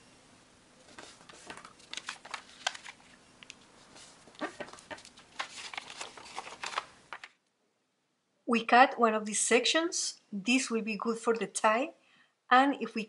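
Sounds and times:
paper crackling as it is folded: 0:00.8 - 0:07.4.

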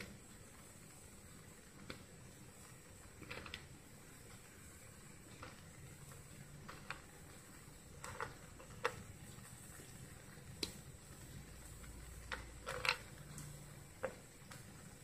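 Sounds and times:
nuts clicking on plate and pan: 0:05.3 - 0:15.0.

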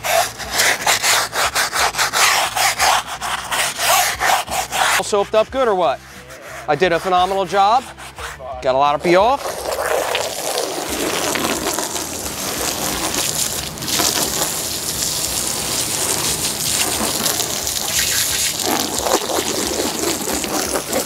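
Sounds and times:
garden hose spraying water: 0:09.1 - 0:21.0.

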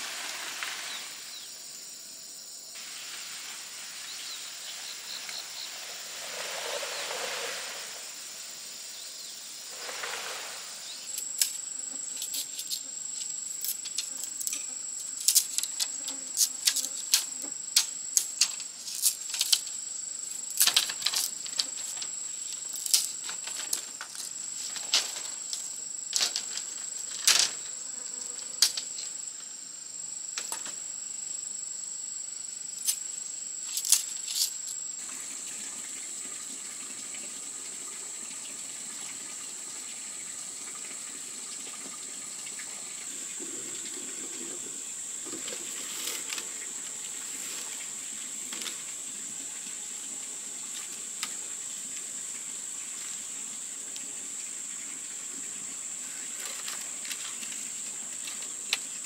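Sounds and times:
high insect drone: 0:00.0 - 0:59.0.

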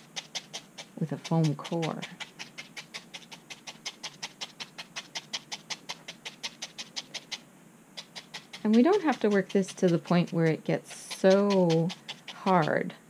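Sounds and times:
felting needle scratchy pokes: 0:00.0 - 0:07.4, 0:08.0 - 0:12.9.

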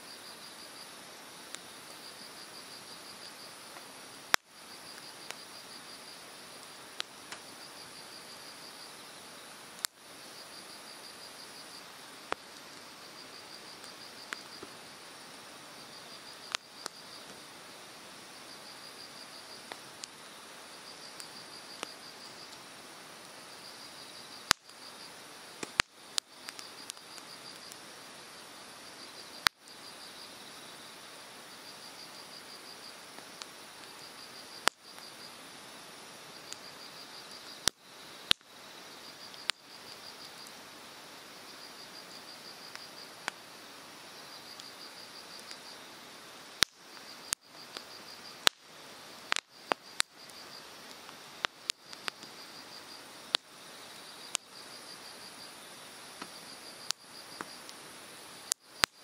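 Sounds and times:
insect chirping in trills: 0:00.0 - 0:59.0
campfire crackling and popping: 0:00.1 - 0:59.0.

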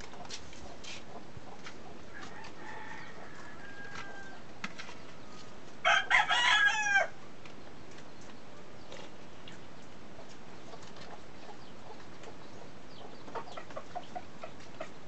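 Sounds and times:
rooster crowing: 0:02.1 - 0:04.5, 0:05.8 - 0:07.2.

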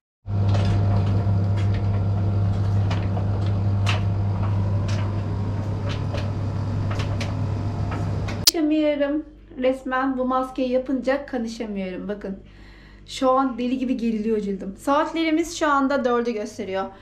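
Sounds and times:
low machine hum: 0:00.3 - 0:08.6.

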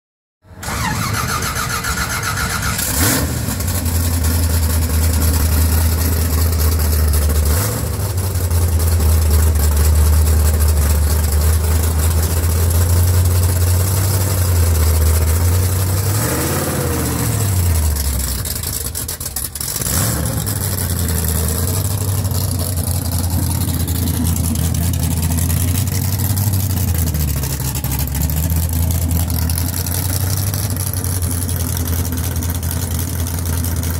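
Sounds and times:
car engine idling loudly: 0:00.4 - 0:33.9.

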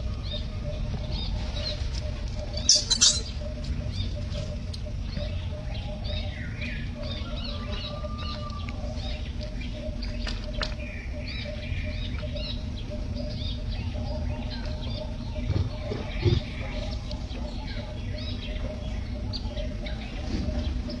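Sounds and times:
faint hum: 0:00.0 - 0:21.0
high-pitched chirps and squeaks: 0:02.6 - 0:03.4.

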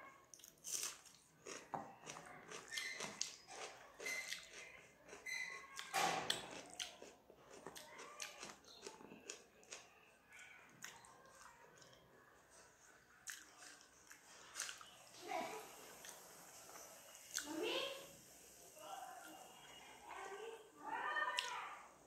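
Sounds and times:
chewing and smacking mouth sounds: 0:00.3 - 0:15.0.

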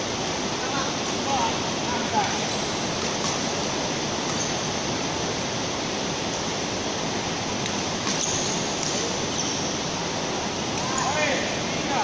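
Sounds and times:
steady rushing hiss: 0:00.0 - 0:12.0.

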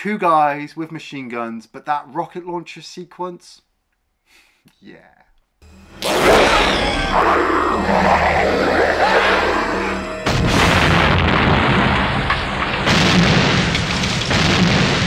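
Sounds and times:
action film music: 0:05.7 - 0:14.9
booms and explosions: 0:10.0 - 0:15.0.

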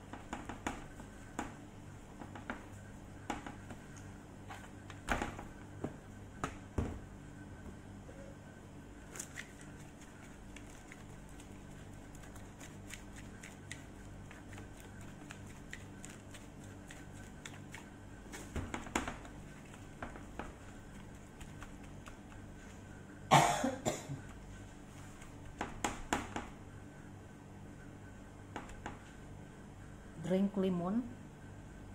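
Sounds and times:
steady low hum: 0:00.0 - 0:31.9
cough-like bursts: 0:23.3 - 0:24.3.

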